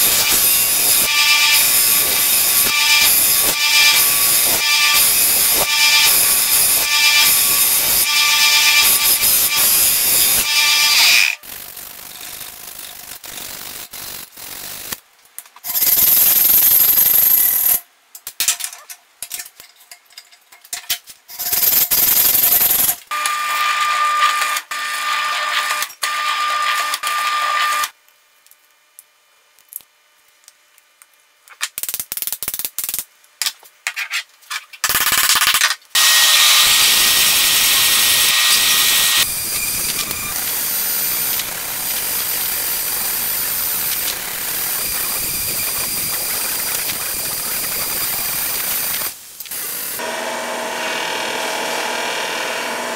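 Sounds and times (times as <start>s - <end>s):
power tool noise: 0.0s - 12.2s, 22.4s - 28.0s, 36.0s - 52.9s
drill press motor running: 38.6s - 52.9s.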